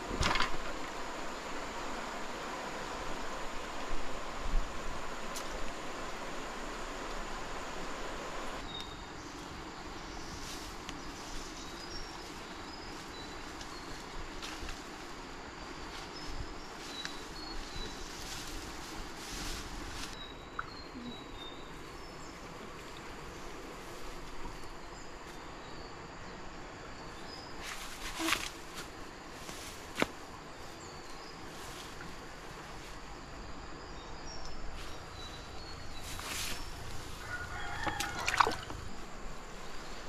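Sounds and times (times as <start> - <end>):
steady outdoor hiss: 0.0 - 40.0
brush rustling and snapping: 27.6 - 30.2, 36.0 - 38.8.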